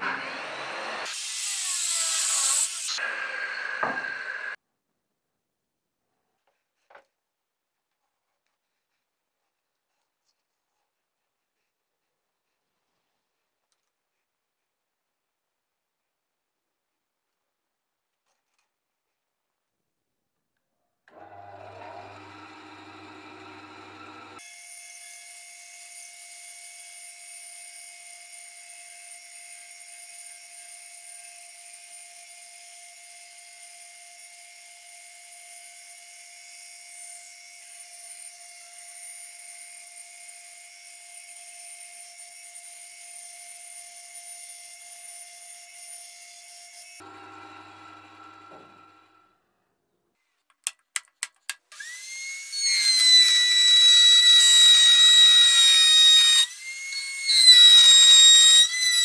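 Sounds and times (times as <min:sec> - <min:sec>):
bandsaw cutting wood: 0:00.0 - 0:04.6, 0:21.1 - 0:25.4, 0:51.7 - 0:59.0.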